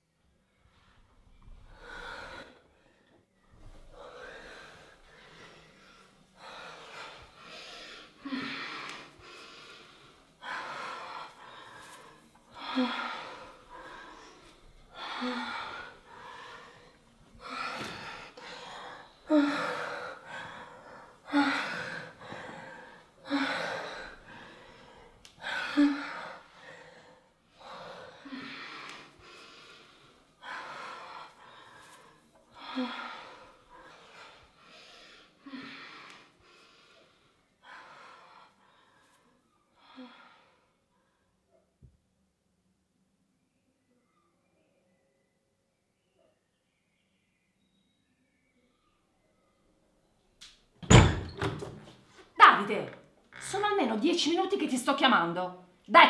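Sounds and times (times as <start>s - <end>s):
person breathing heavily: 1.6s - 41.3s.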